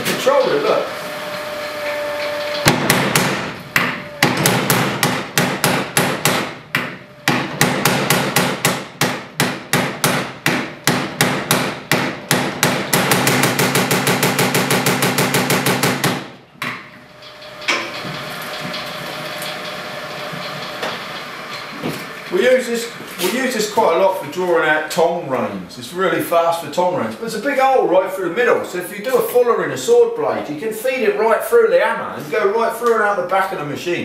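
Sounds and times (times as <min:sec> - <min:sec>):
motor humming: 0:00.4 - 0:04.4
power hammer blows: 0:00.9 - 0:16.4.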